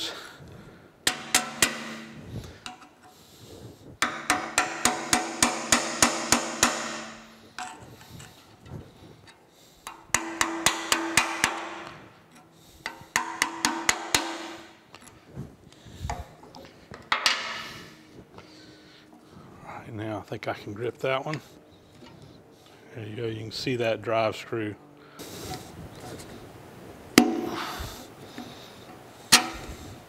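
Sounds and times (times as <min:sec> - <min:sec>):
hammer tapping chisel on metal: 0:01.0 - 0:03.2, 0:04.0 - 0:08.4, 0:09.8 - 0:15.1, 0:28.3 - 0:29.8
metal ringing: 0:01.0 - 0:03.2, 0:04.0 - 0:08.3.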